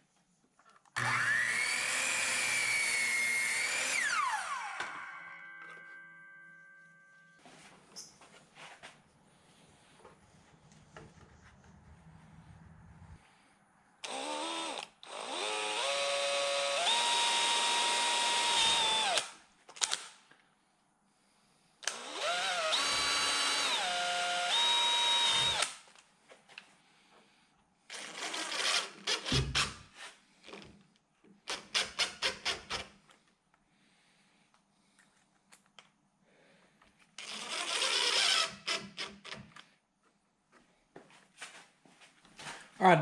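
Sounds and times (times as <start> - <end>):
cordless drill driving screws: 1.0 - 5.1, 14.0 - 20.1, 21.8 - 25.9, 27.9 - 29.8, 37.2 - 39.6.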